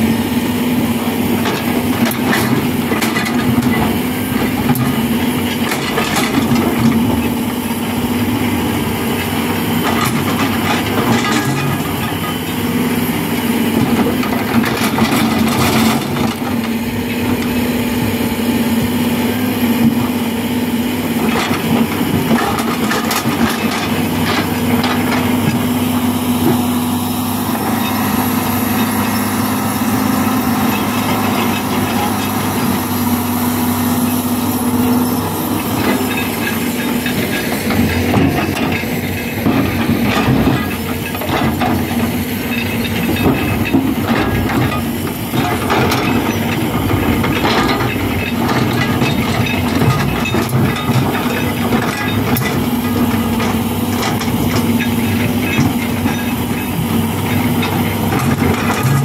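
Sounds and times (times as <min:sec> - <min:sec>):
excavator diesel engine: 0:00.0 - 0:59.0.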